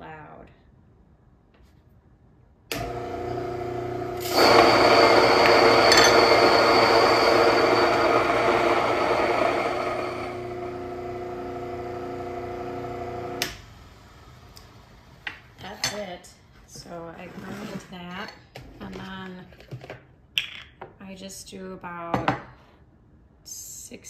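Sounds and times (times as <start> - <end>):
electric grain mill motor running: 2.7 - 13.6
grain grinding: 4.2 - 11.8.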